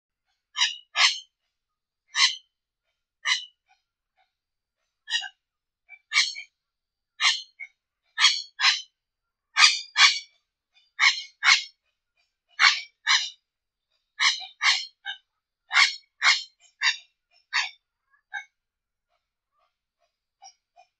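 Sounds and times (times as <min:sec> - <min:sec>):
bird giving rasping calls: 0:00.6 - 0:01.3, 0:02.2 - 0:02.4, 0:03.2 - 0:03.5, 0:05.1 - 0:05.3, 0:06.1 - 0:06.4, 0:07.2 - 0:08.9, 0:09.6 - 0:10.3, 0:11.0 - 0:11.7, 0:12.5 - 0:13.4, 0:14.2 - 0:18.4.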